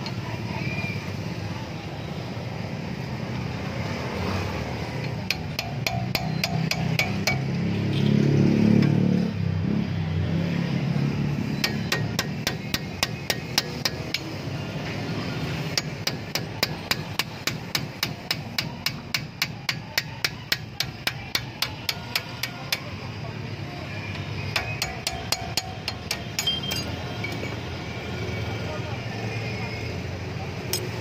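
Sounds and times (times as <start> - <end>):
hammer tapping steel punch: 5.0 - 7.6, 11.6 - 14.4, 15.7 - 22.9, 24.5 - 27.4.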